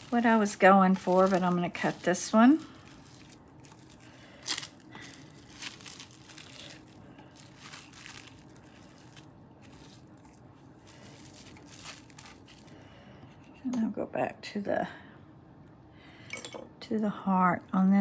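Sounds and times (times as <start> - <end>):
plastic wrap crinkling: 0.0 - 13.1.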